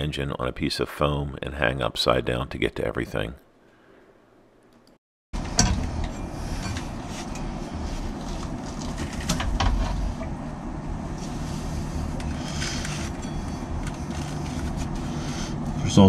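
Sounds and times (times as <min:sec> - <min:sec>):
steady low rumble: 0:05.4 - 0:16.0.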